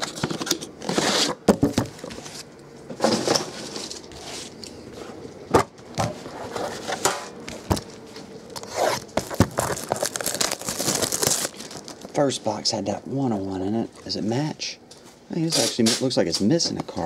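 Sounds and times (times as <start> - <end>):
cardboard rustling and scraping: 0.0 - 5.2, 6.0 - 7.7, 8.6 - 12.0.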